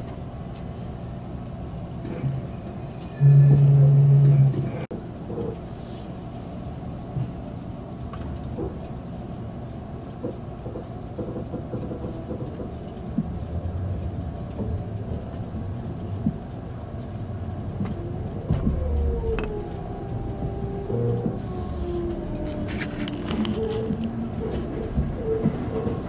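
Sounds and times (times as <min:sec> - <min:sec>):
train wheels rumbling on rail: 0:00.0 - 0:26.0
train knocks: 0:10.2 - 0:13.3, 0:17.8 - 0:19.8, 0:23.8 - 0:26.0.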